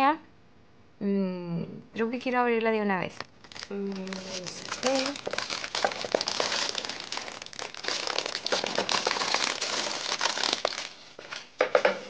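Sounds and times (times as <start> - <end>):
plastic wrapping crinkling: 3.1 - 11.6.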